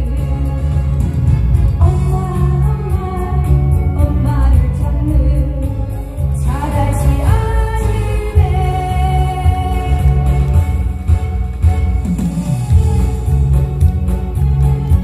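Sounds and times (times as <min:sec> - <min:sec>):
woman singing into microphone: 0:00.0 - 0:01.1, 0:01.8 - 0:10.6
backing track with drums and bass: 0:00.0 - 0:15.0.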